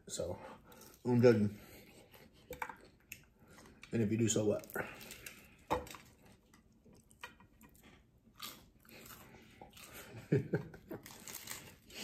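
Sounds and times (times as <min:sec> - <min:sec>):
person chewing crispy food: 0:04.6 - 0:12.0.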